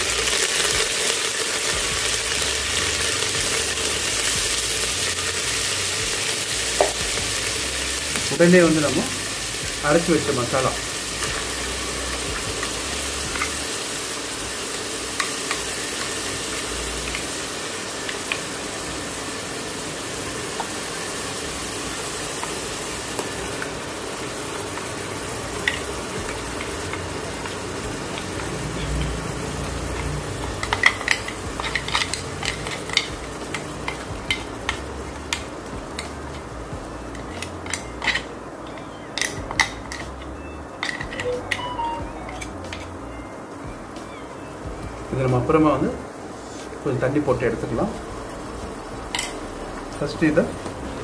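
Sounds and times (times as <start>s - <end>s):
paste sizzling in hot oil: 0.0s - 40.4s.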